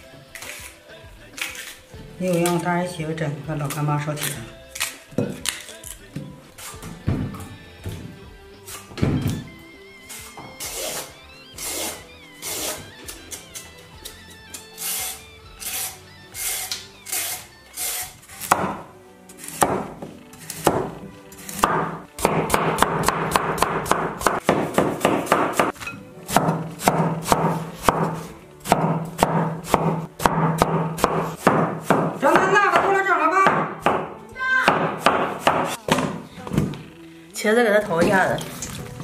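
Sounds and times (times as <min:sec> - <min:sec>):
background music: 0:00.0 - 0:39.0
cleaver chopping on cutting board: 0:18.4 - 0:18.8, 0:19.6 - 0:20.0, 0:21.6 - 0:34.1, 0:34.7 - 0:36.2.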